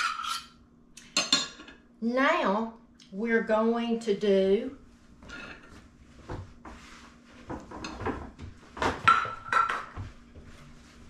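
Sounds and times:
scraping in a bowl: 0.0 - 0.6
utensils clinking against glass bowl: 0.0 - 0.6.

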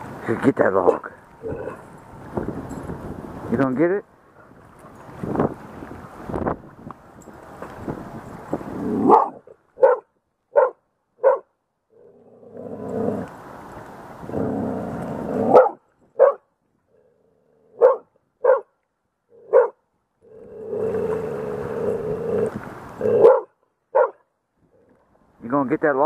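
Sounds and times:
wind buffeting the microphone: 1.2 - 9.4, 20.7 - 23.2
small dog barking sharply: 9.1 - 10.0, 10.6 - 11.4, 17.8 - 18.7, 23.2 - 24.2.

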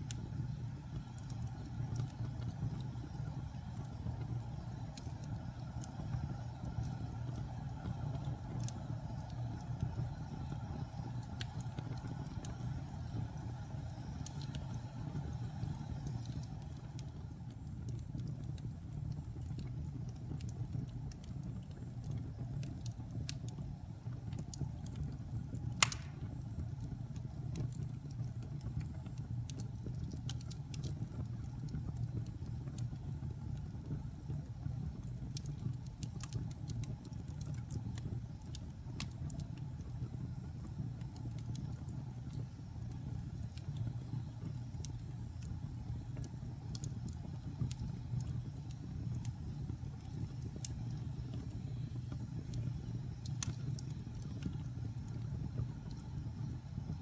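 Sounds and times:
fire burning in fireplace: 0.0 - 57.0
fire crackling: 0.0 - 57.0
loud pop from fire: 25.8 - 26.4.

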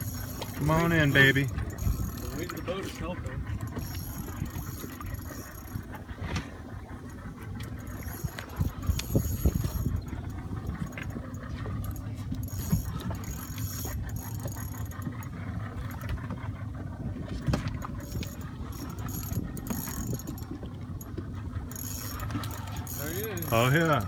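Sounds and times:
fishing reel clicking and whirring: 0.0 - 6.2, 6.8 - 24.0
steady low rumble: 0.0 - 24.0.

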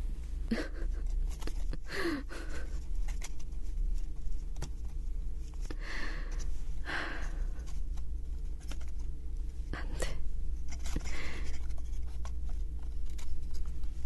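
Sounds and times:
steady low hum: 0.0 - 14.0
breathy sighs: 5.7 - 7.6.

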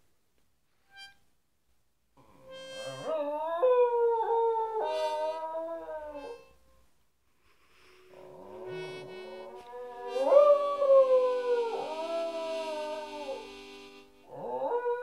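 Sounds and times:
dog howling: 3.0 - 6.4, 9.5 - 13.4, 14.3 - 15.0.

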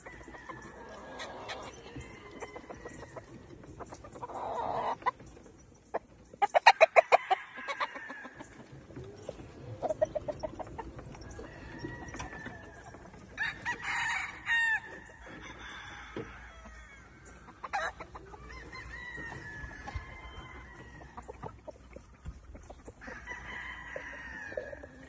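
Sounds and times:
rooster crowing: 0.0 - 3.2, 11.2 - 17.2, 17.8 - 21.2, 23.0 - 25.0
chickens clucking: 0.0 - 25.0.

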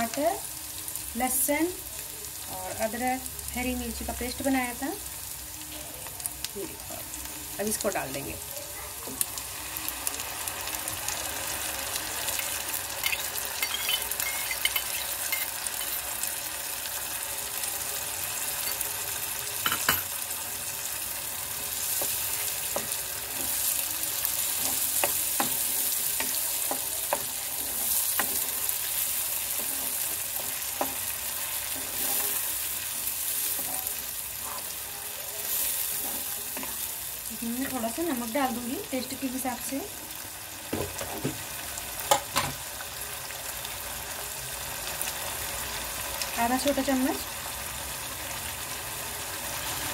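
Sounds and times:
paste sizzling in hot oil: 6.4 - 42.4.

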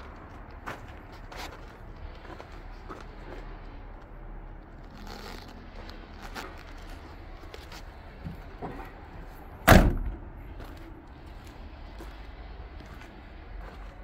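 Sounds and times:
truck door slamming: 9.6 - 10.3.

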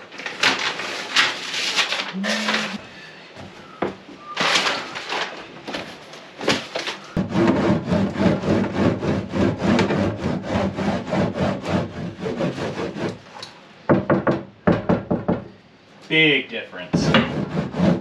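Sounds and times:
foil sheets crinkling and tapping: 0.0 - 2.6.

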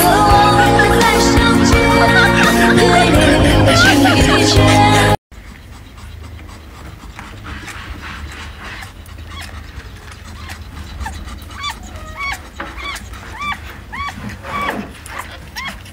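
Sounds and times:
kittens mewing: 8.8 - 15.9.

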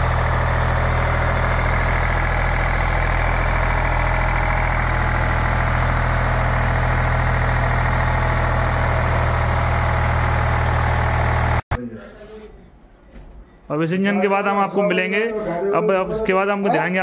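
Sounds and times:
diesel generator humming: 0.0 - 11.7.

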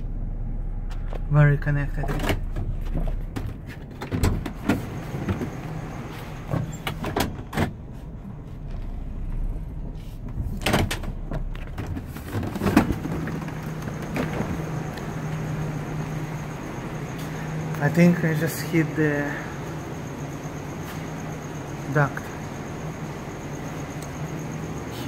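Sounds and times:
van door opening and shutting: 0.0 - 18.3
van engine idling: 0.0 - 25.0.

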